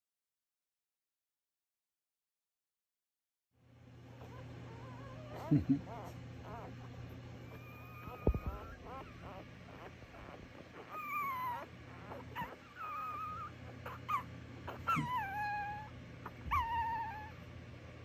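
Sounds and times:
puppies whimpering and squealing: 4.0 - 17.5.

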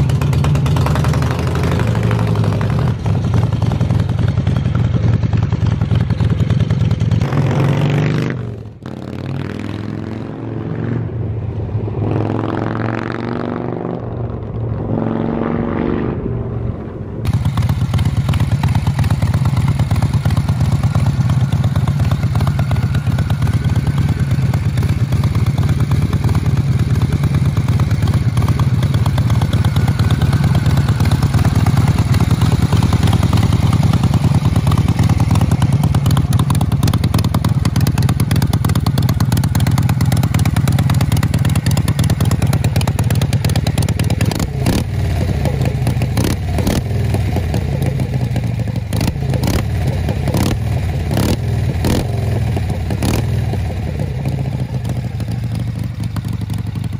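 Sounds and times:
motorcycle engine running: 0.0 - 11.4, 17.2 - 56.9.

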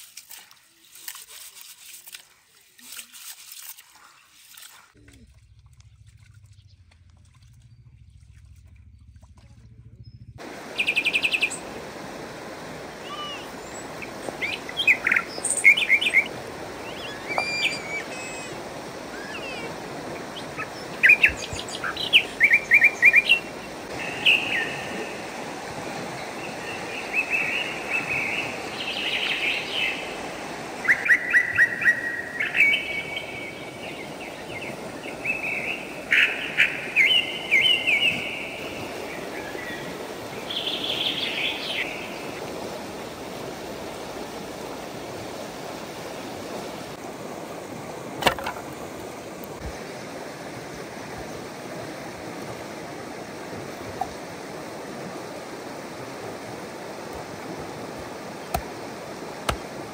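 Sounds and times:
songbirds chirping: 5.0 - 42.6
outdoor background hiss: 10.4 - 59.9.

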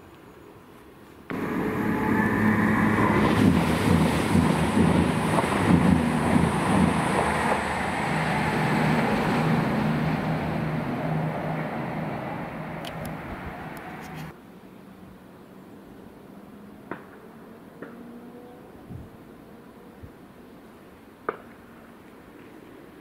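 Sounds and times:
diesel train passing: 1.3 - 14.4.

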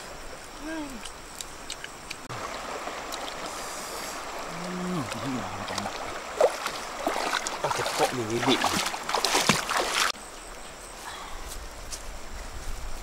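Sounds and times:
river water rushing over rocks: 2.3 - 10.1.

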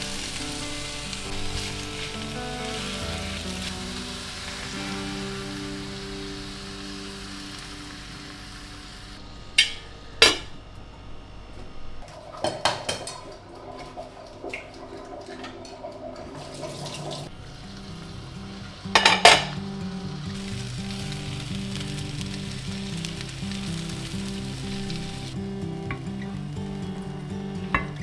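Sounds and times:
egg frying hiss: 0.0 - 9.8, 16.4 - 28.0
pots and pans clattering: 12.2 - 13.9, 18.9 - 19.6, 27.7 - 28.0.

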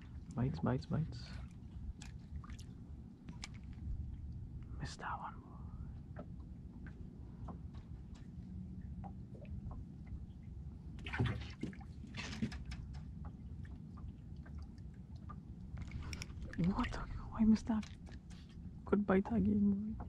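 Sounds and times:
waves lapping against boat: 0.0 - 4.8, 6.0 - 18.9
low rumble: 0.0 - 11.1, 13.1 - 20.0
splashy clicks: 11.0 - 18.6.

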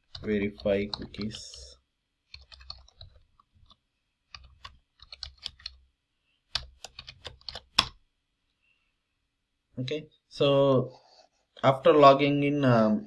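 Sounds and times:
computer keyboard typing: 0.0 - 5.8, 6.5 - 8.0.

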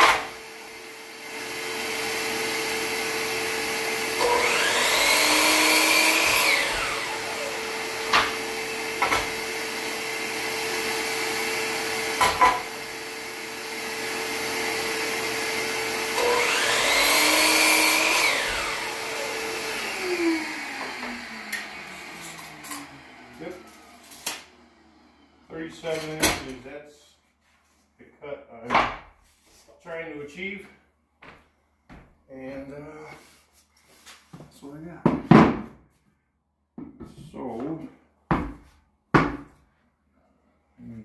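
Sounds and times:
shop vacuum hum: 0.0 - 27.0
miter saw whine: 16.0 - 25.6.

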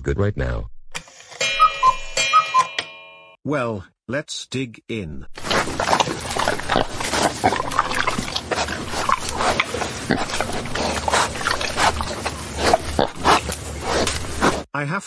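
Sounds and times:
chewing and munching: 5.4 - 14.7.

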